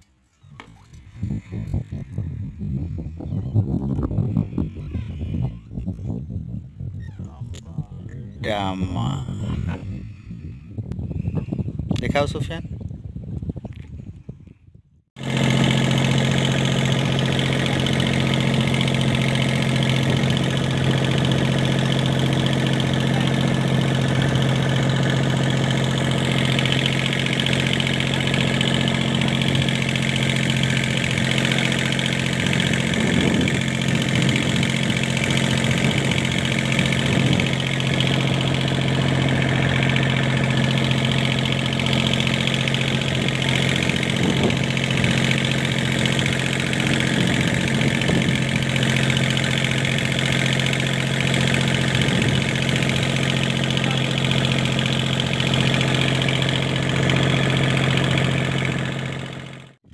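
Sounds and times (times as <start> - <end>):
boat engine droning: 15.2 - 59.9.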